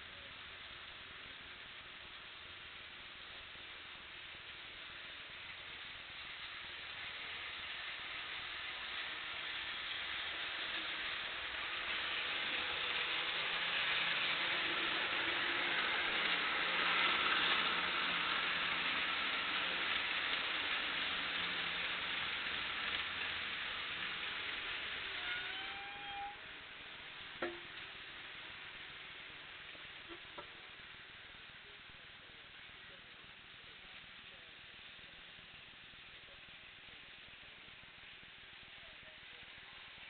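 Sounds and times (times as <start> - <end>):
model train wheels on rail: 0.0 - 40.0
short rising squeal: 25.2 - 26.5.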